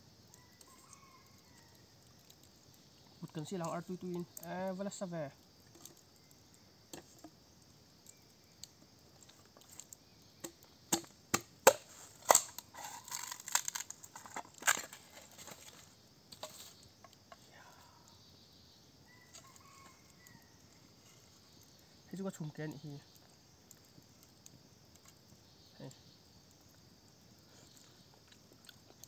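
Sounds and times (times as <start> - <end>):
bamboo cracking and snapping: 8.1 - 17.3
rustling: 11.8 - 17.1.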